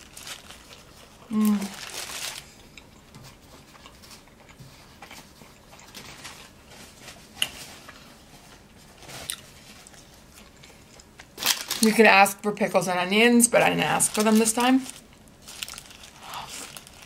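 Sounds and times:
person chewing: 0:00.6 - 0:06.6, 0:08.6 - 0:11.4.

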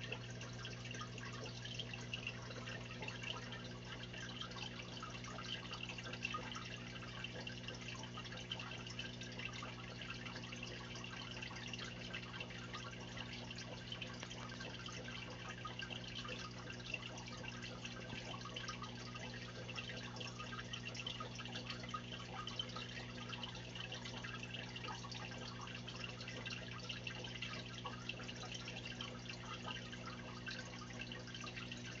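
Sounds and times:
aquarium air bubbling: 0:00.0 - 0:32.0
small water drips: 0:00.0 - 0:32.0.

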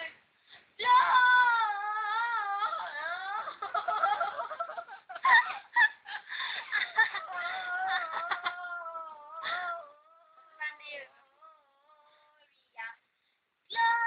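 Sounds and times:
girl singing unaccompanied: 0:00.8 - 0:03.7, 0:07.0 - 0:13.1.

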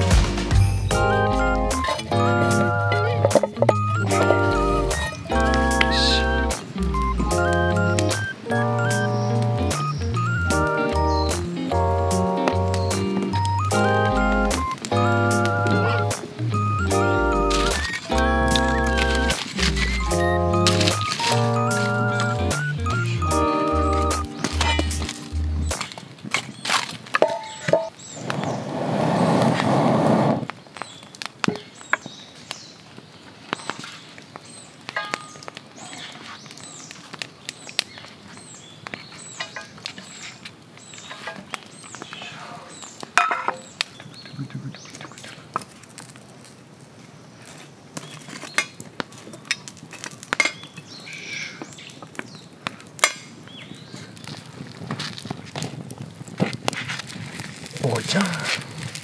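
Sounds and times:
campfire crackling and popping: 0:00.0 - 0:59.0
frying pan and utensils clinking: 0:03.0 - 0:06.2, 0:24.2 - 0:25.4, 0:27.2 - 0:28.0, 0:34.9 - 0:35.6, 0:39.4 - 0:39.8, 0:43.2 - 0:43.7, 0:49.5 - 0:50.7
loud rushing rustling noise: 0:28.2 - 0:30.5.

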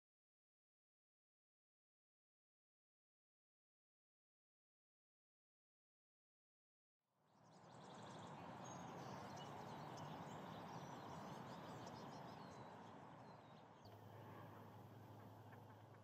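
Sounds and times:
quiet outdoor background noise: 0:07.1 - 0:16.0
finches chirping: 0:07.6 - 0:16.0
low steady hum: 0:07.6 - 0:16.0.

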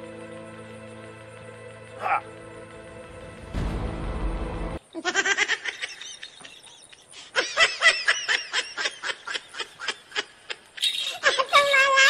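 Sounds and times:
high-pitched snickering laughter: 0:04.9 - 0:12.0.

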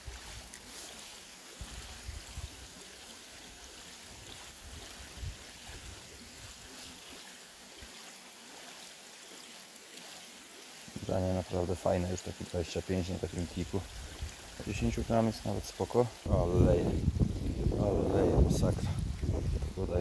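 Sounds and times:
wind rumble on microphone: 0:04.6 - 0:06.5, 0:16.2 - 0:20.0.

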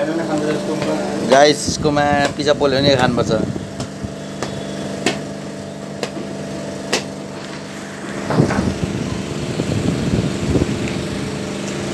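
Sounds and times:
steady motor hum: 0:00.0 - 0:11.9
hammer knocking on coconut shell: 0:00.8 - 0:03.2, 0:03.8 - 0:05.3, 0:06.9 - 0:07.1.

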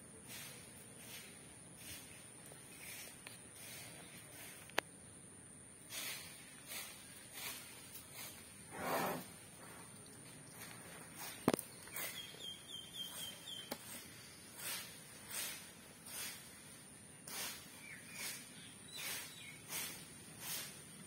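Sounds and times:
broom sweeping: 0:00.2 - 0:04.7, 0:05.9 - 0:09.9, 0:10.6 - 0:12.4, 0:13.0 - 0:21.0
bird chirping: 0:11.2 - 0:14.4, 0:17.7 - 0:19.9.

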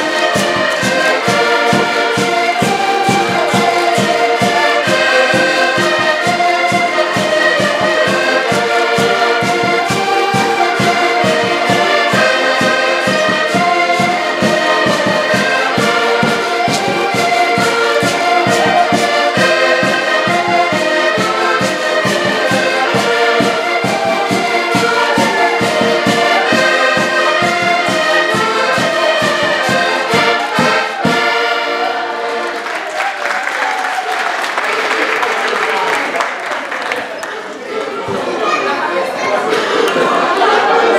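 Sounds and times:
voices: 0:00.0 - 0:32.8, 0:33.9 - 0:40.9
button accordions playing dance tune: 0:00.0 - 0:32.9
people clapping: 0:14.7 - 0:38.7.

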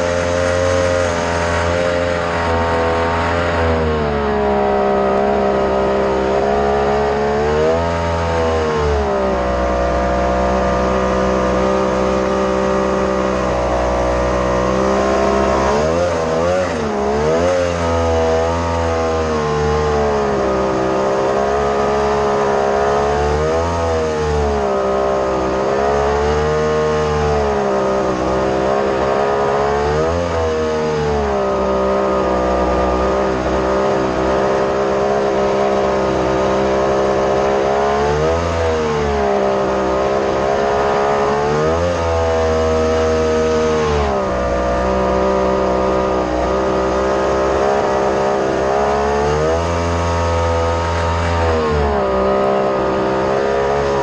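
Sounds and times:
jet boat engine revving: 0:00.0 - 0:54.0.

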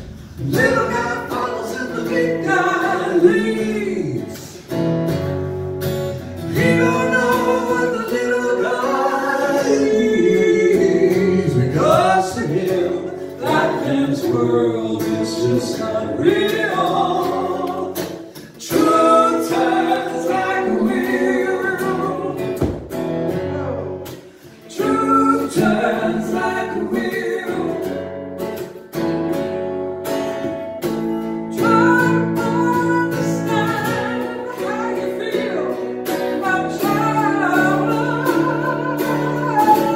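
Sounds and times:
acoustic guitar: 0:00.0 - 0:39.9
woman singing into microphone: 0:31.6 - 0:35.8, 0:36.4 - 0:39.9.

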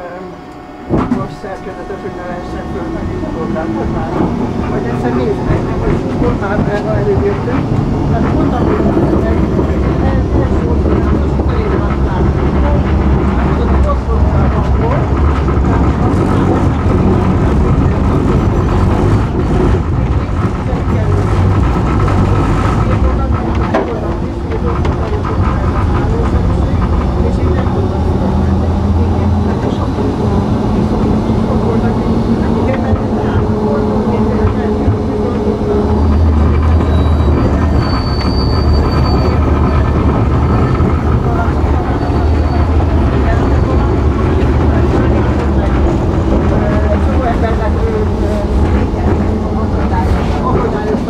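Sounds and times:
tram wheels rumbling on rails: 0:00.0 - 0:51.0
high wheel squeal: 0:35.2 - 0:44.0.

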